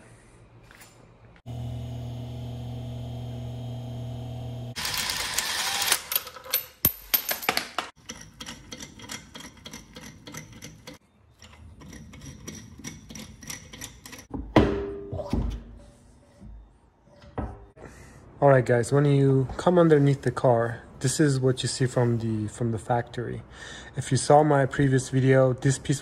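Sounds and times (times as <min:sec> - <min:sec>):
cordless drill spinning bolts: 0:04.8 - 0:06.4.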